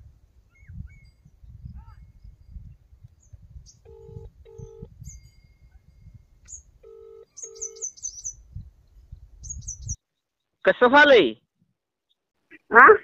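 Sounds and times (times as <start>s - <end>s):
birds chirping: 3.2s - 10.7s
phone ringback tone: 3.8s - 5.1s, 6.8s - 8.0s.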